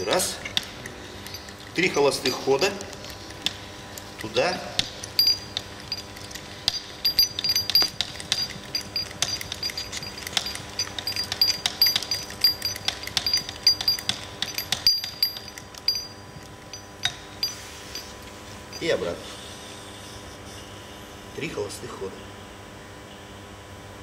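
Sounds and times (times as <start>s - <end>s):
hydraulic hand pump clicking: 0.0s - 18.1s.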